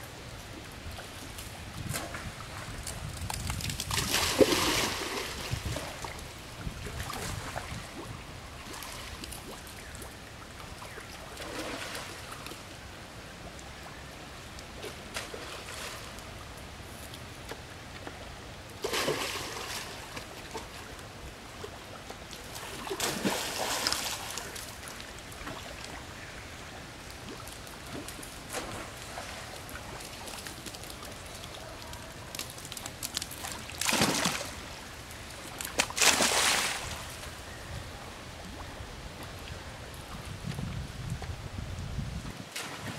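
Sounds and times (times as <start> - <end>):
monkeys splashing in water: 27.4 - 34.6, 35.5 - 37.2.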